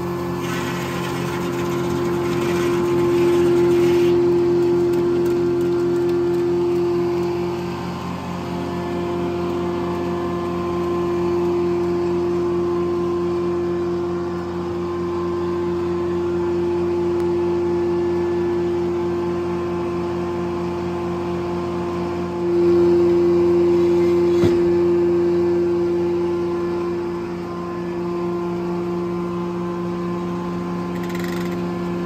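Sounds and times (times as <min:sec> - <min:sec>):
sawmill mechanical drone: 0:00.0 - 0:32.0.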